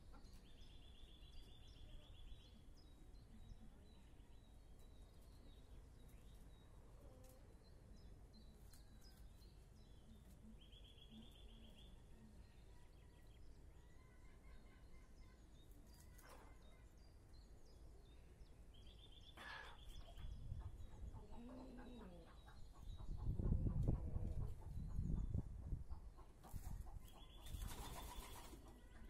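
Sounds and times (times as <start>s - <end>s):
faint bird chirps: 0.0s - 25.4s, 26.6s - 29.0s
chickens clucking softly: 19.3s - 29.0s.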